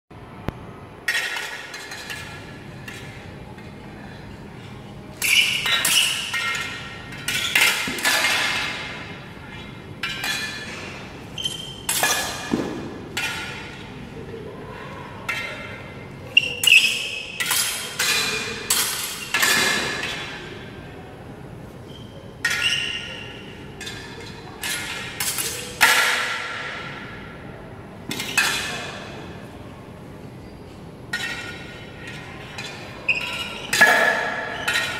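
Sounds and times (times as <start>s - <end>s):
swords hitting metal bucklers: 5.2s - 9.0s.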